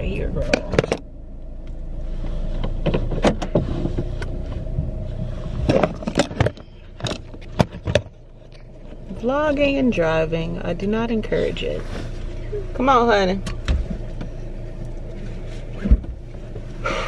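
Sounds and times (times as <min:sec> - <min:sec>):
engine and road rumble: 0:00.0 - 0:17.0
sharp clicks and knocks: 0:05.6 - 0:09.0.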